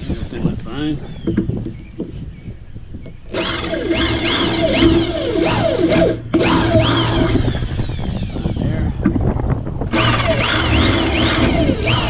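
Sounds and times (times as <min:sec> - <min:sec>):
drill bit grinding and squealing: 0:03.3 - 0:08.7, 0:09.9 - 0:12.0
electric drill motor whining: 0:03.3 - 0:08.7, 0:09.9 - 0:12.0.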